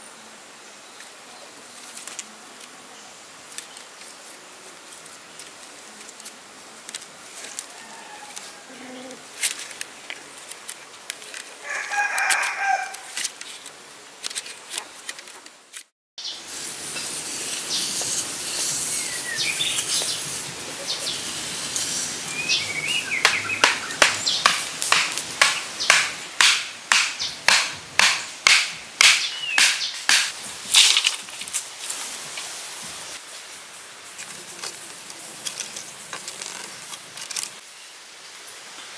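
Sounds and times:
stick scraping over dirt: 16.5s - 32.5s, 34.1s - 37.6s
birds chirping: 17.6s - 21.4s, 22.2s - 27.5s, 29.0s - 30.2s
stakes pounded into ground: 23.2s - 31.1s.

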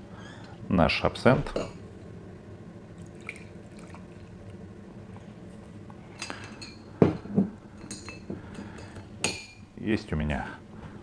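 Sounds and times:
liquid pouring into glass: 3.0s - 4.4s.

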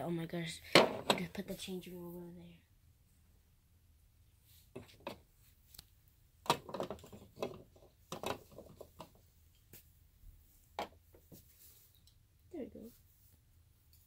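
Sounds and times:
plastic toy furniture clattering: 6.4s - 9.2s.

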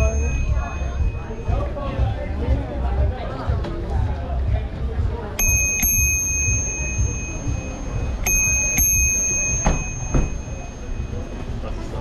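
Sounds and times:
bicycle bell dings: 0.0s - 1.8s, 5.4s - 11.8s.

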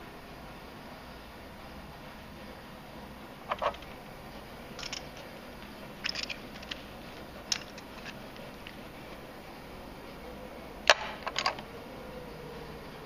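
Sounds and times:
coins clinking together: 4.8s - 5.3s, 6.0s - 8.2s.

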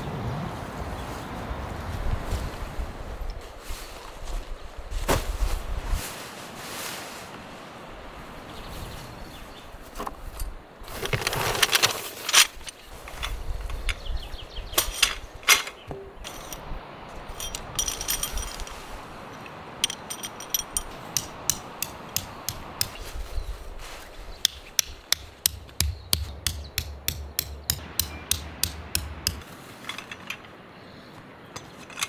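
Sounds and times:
canvas rustling: 0.6s - 13.5s, 22.9s - 24.4s
metal tent pegs clinking: 14.7s - 23.0s, 24.8s - 30.6s, 31.5s - 32.0s
hammer striking metal peg: 24.5s - 29.4s.

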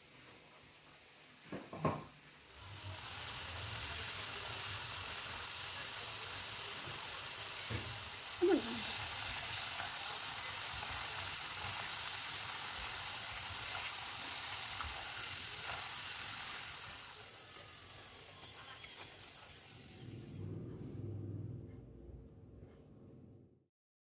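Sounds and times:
fries sizzling in hot oil: 1.8s - 20.4s
spatula stirring fries: 2.5s - 19.8s.

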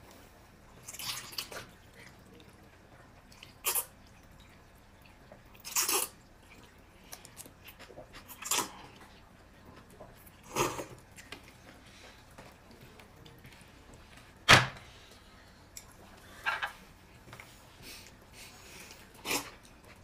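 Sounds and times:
wet slurping: 3.3s - 4.6s, 5.6s - 9.2s, 17.9s - 20.0s.

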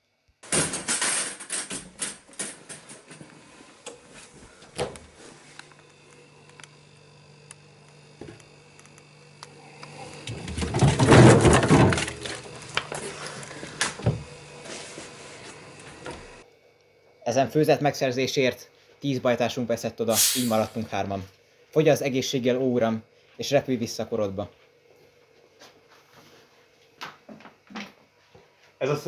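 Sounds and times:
refrigerator hum: 0.1s - 29.0s
rustling and clattering: 10.2s - 13.1s.

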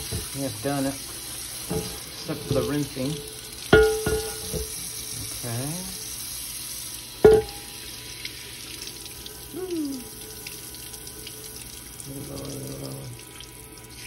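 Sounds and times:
tap water splashing on skillet: 0.0s - 5.5s, 7.2s - 9.2s.

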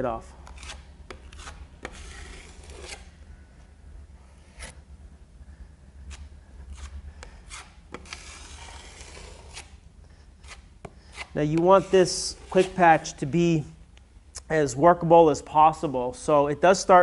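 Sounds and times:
putty knife scraping concrete: 0.4s - 3.2s, 4.4s - 4.8s, 6.1s - 9.8s, 10.4s - 13.3s.

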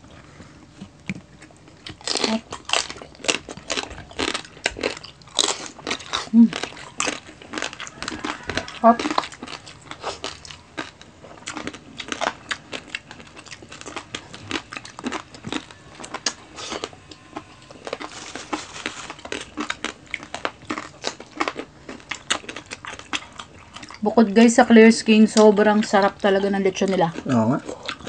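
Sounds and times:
crunching crispy pork skin: 1.4s - 24.0s.

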